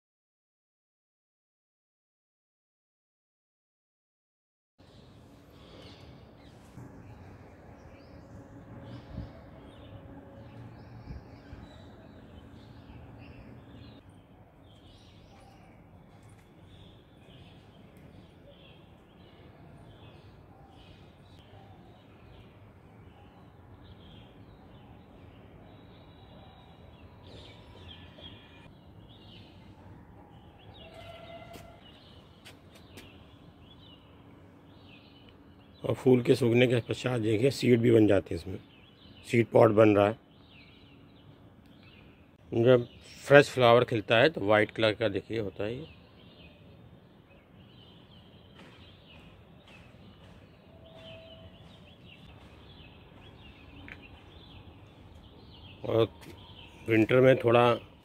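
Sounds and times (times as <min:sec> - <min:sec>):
small birds chirping: 0:04.8 - 0:58.0.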